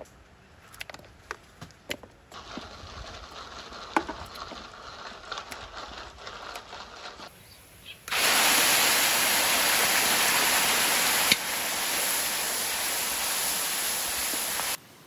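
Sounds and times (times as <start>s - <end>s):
paste sizzling in hot oil: 8.1s - 14.8s.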